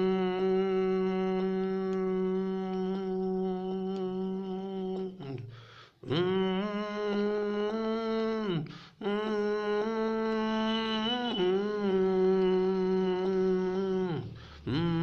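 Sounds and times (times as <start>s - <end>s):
man humming a slow melody: 0.0s - 15.0s
man breathing: 5.4s - 6.1s, 8.6s - 9.0s, 14.2s - 14.7s.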